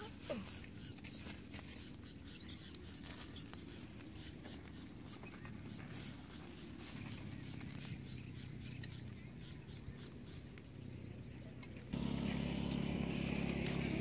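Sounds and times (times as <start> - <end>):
charcoal fire crackling: 0.5 - 14.0
low steady rumble: 4.8 - 14.0.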